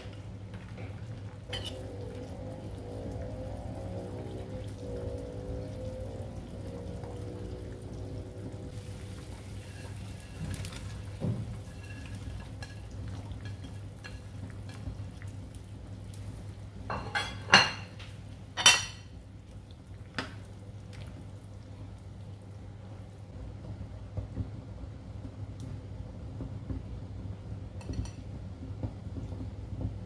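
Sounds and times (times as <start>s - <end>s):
utensils clattering on cooking pot: 1.5s - 1.9s, 9.6s - 14.9s, 16.9s - 19.2s.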